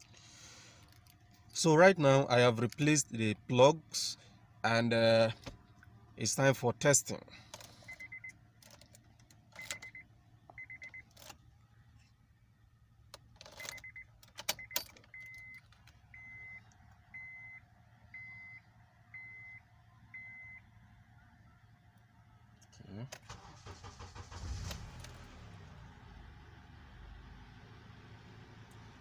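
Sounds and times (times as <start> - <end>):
car keys jangling: 7.5 - 10.0, 10.7 - 11.4, 13.1 - 16.0
dashboard warning chime beeps: 7.8 - 8.4, 9.6 - 11.1, 13.6 - 20.6.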